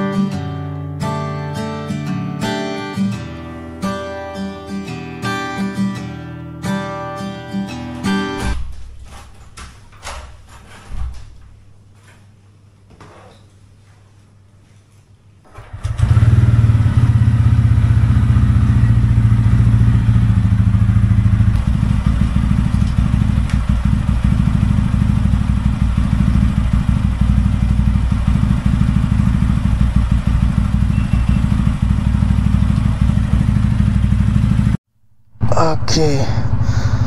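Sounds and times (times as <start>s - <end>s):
motorcycle engine idling: 15.6s - 34.8s, 36.4s - 37.0s.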